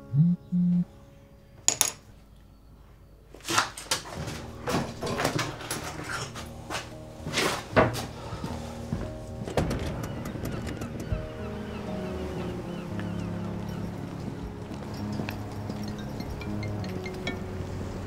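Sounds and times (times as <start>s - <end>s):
soft background music: 0.0s - 18.0s
household handling knocks and clatters: 3.4s - 8.1s.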